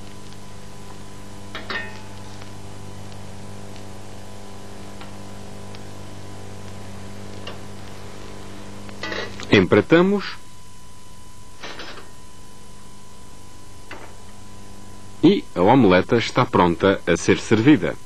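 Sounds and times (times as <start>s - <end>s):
low hum with hiss: 0.0s - 18.0s.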